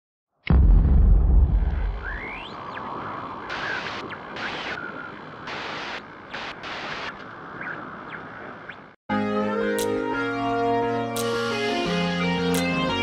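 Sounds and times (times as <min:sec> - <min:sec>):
deep boom: 0:00.4 - 0:02.4
steady hiss: 0:03.5 - 0:07.2.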